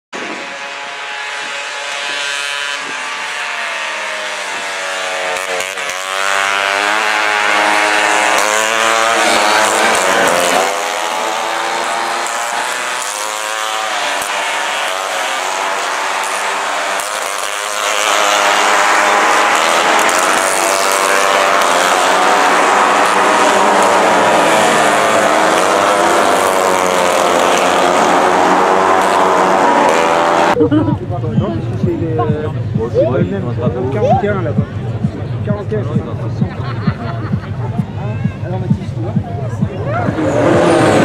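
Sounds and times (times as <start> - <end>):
mopeds racing past: 0.2 - 30.6, 39.6 - 41.0.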